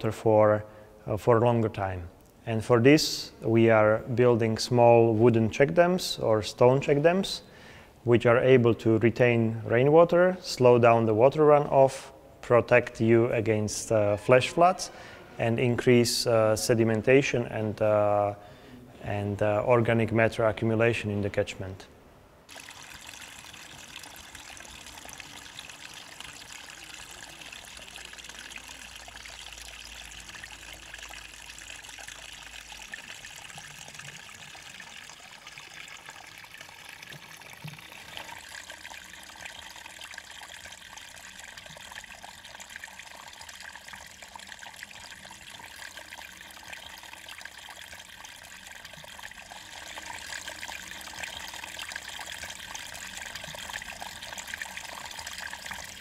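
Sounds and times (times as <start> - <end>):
stream trickling over stones: 22.5 - 56.0.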